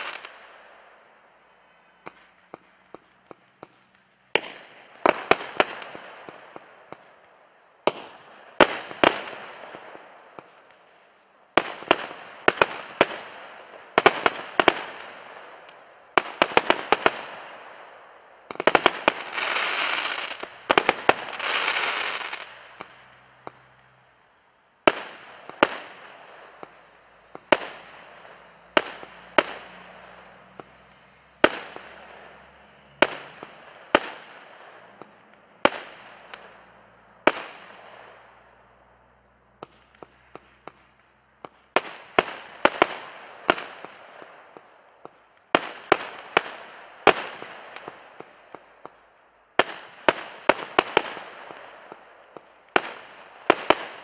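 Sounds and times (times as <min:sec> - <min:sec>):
firework tubes banging: 0:24.9 - 0:38.2.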